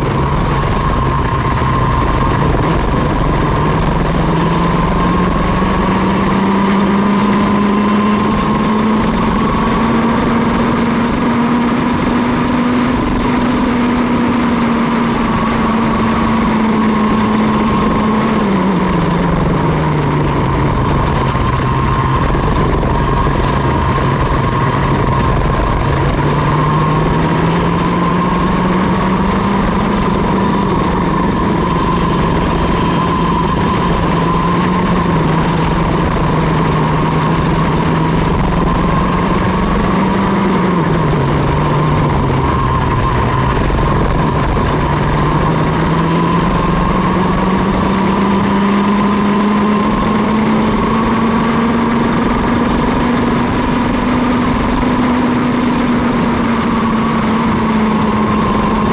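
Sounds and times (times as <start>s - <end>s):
two-stroke kart engine racing: 0.0s - 58.9s.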